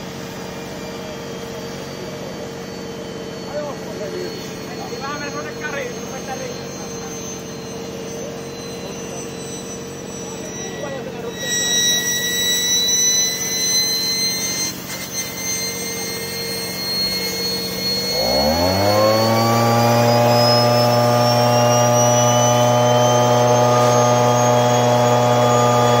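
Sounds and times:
leaf blower engine: 0.0s - 12.7s, 13.3s - 26.0s
turbocharger whining: 0.0s - 26.0s.

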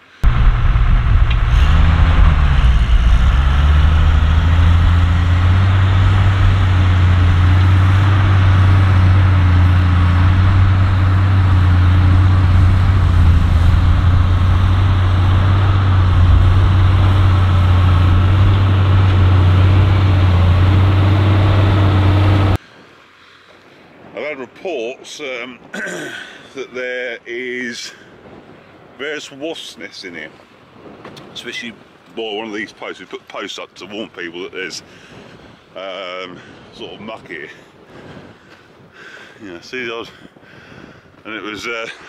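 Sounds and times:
tractor diesel engine under load: 0.0s - 22.6s.

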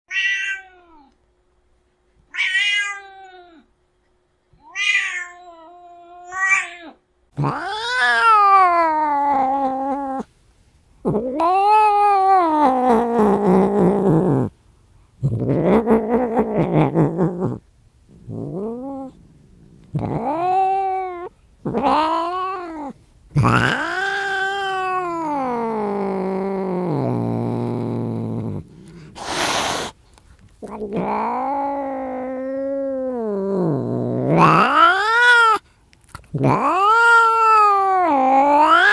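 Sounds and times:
cat meowing: 0.1s - 1.1s, 2.3s - 3.6s, 4.6s - 10.3s, 19.9s - 27.7s, 34.3s - 35.6s, 36.4s - 38.9s.

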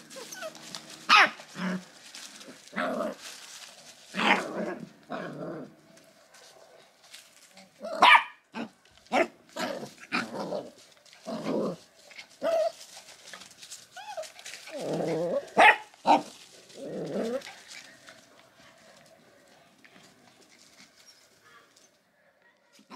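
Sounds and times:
puppies yipping and barking: 0.0s - 1.6s, 12.3s - 16.5s.

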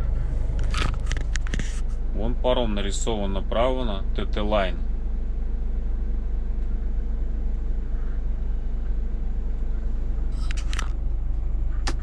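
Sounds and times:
truck diesel engine idling: 0.0s - 6.3s.

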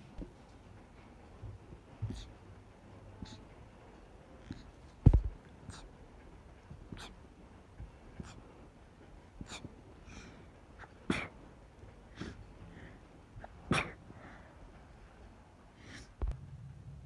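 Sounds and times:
stifled sneezes: 5.6s - 5.9s, 6.9s - 7.2s, 8.2s - 8.4s, 9.4s - 9.7s, 10.8s - 11.5s, 12.1s - 12.4s, 13.4s - 14.4s
person sniffling: 9.4s - 11.3s, 12.1s - 14.5s.

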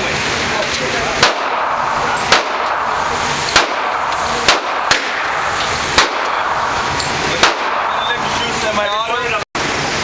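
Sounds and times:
steady rushing background noise: 0.0s - 10.0s
gunshots: 1.2s - 8.3s.

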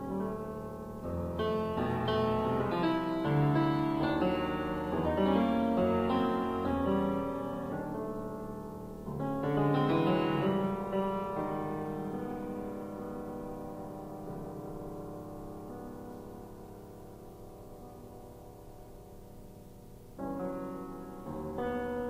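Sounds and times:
piano chord ringing: 0.0s - 22.0s
solo piano playing: 0.0s - 22.0s.

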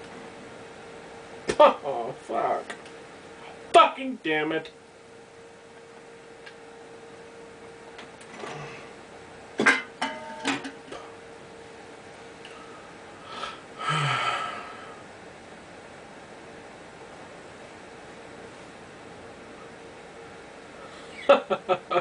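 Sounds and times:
throaty exhale: 13.2s - 15.0s.

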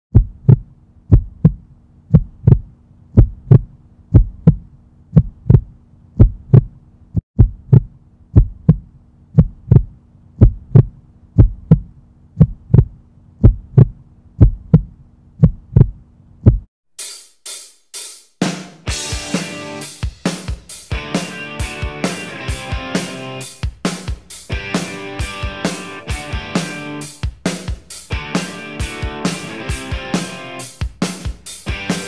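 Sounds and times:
heartbeat thumps: 0.1s - 16.7s.

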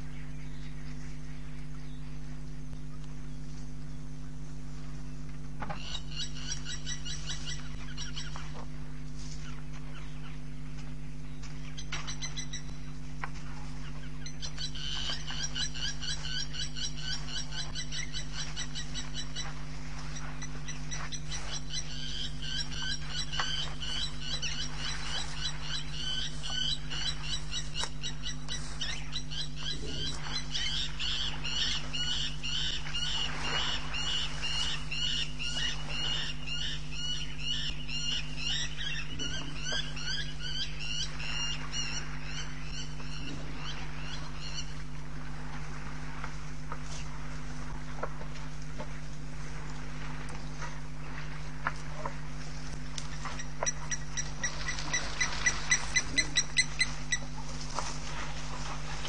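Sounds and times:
low electrical hum: 0.0s - 59.0s
frog chorus chirping: 13.7s - 45.0s, 53.0s - 59.0s.

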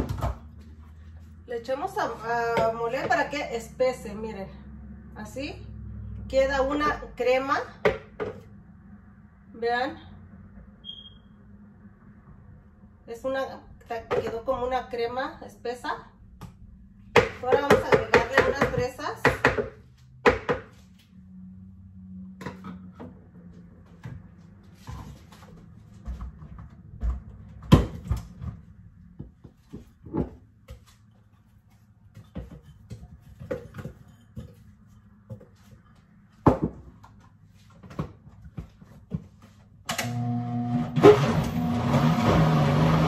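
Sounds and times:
blender motor running: 40.0s - 43.0s.

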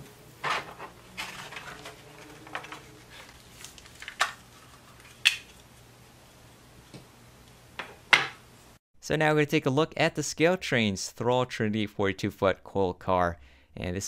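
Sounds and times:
plastic packaging crackling: 1.1s - 5.6s.

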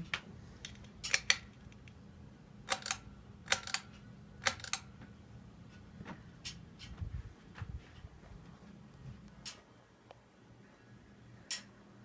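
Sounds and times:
faint steady hum: 0.0s - 12.0s
pull-chain switch double clicks: 2.7s - 4.9s.

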